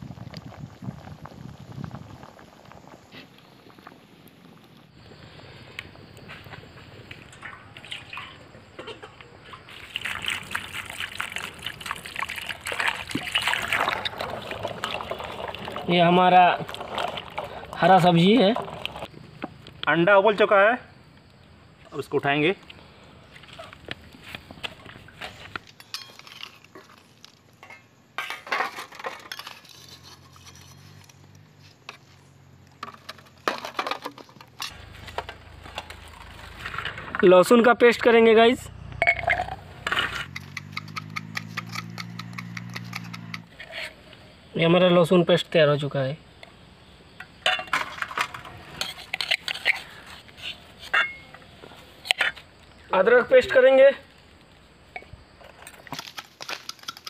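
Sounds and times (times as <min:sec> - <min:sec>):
water pouring into steel bowl: 0:09.7 - 0:19.1.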